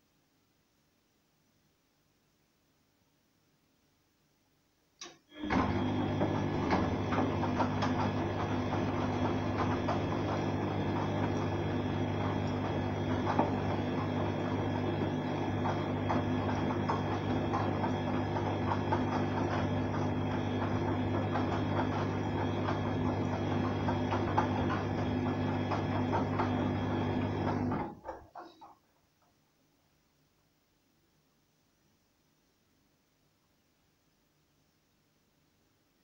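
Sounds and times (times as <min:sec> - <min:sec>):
washing machine motor hum: 0:05.0 - 0:28.7.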